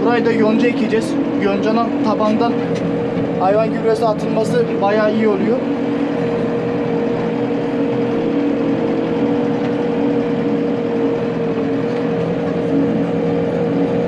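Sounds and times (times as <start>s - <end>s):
constant whine: 0.0s - 14.0s.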